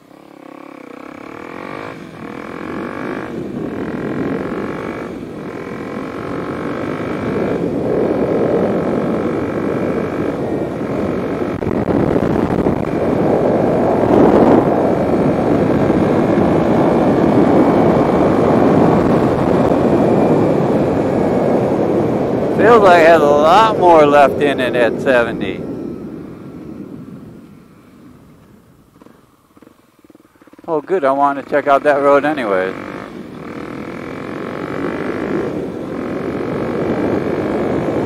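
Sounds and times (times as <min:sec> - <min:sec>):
motorcycle engine accelerating: 0:00.0 - 0:38.0
wind rush: 0:01.5 - 0:29.7.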